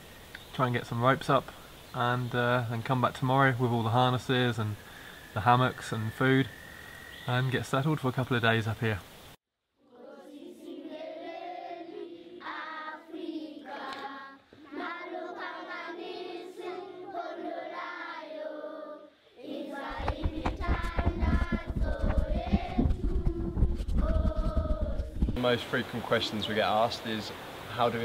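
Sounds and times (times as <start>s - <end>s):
choir singing: 9.8s - 25.5s
low rumbling noise: 20.0s - 25.4s.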